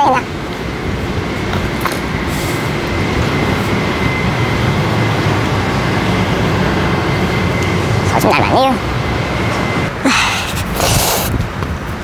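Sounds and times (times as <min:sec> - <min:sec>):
faint high whine: 0:00.0 - 0:10.6
low street rumble: 0:00.0 - 0:12.0.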